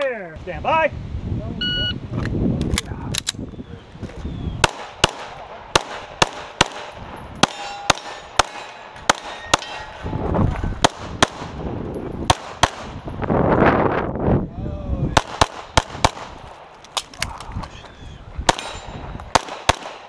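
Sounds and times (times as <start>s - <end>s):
pistol shots: 4.6s - 10.0s, 12.2s - 13.0s, 15.2s - 17.1s, 18.5s - 20.0s.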